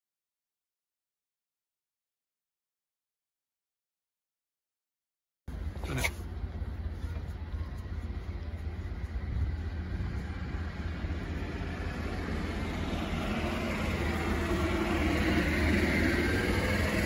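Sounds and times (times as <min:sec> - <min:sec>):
engine running low rumble: 0:05.5 - 0:17.0.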